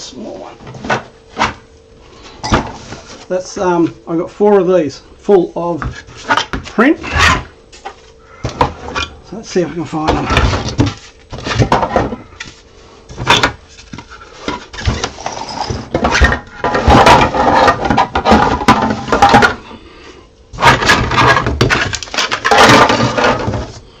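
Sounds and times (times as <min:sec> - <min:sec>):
plastic parts clattering: 0:13.2 - 0:19.6, 0:20.6 - 0:23.8.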